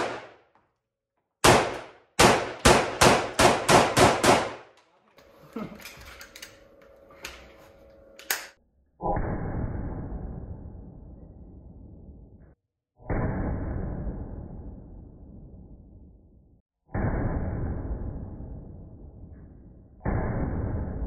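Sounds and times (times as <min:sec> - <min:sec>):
rifle shots echoing indoors: 0:00.0 - 0:00.6, 0:01.4 - 0:04.8.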